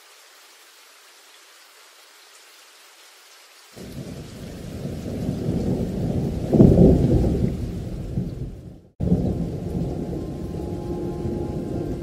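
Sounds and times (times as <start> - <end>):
steady rain: 0.0 - 12.0
thunder rumbling: 3.8 - 12.0.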